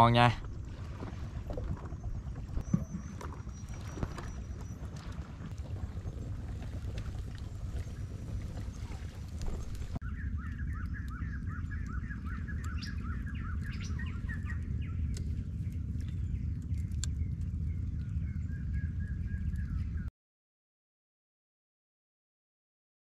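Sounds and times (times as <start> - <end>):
steady low rumble: 0.0 - 20.1
birds chirping: 7.1 - 20.1.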